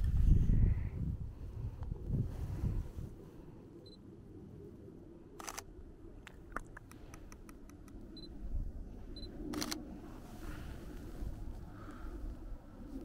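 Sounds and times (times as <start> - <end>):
camera shutter clicks: 5.4 - 5.7, 9.5 - 9.8.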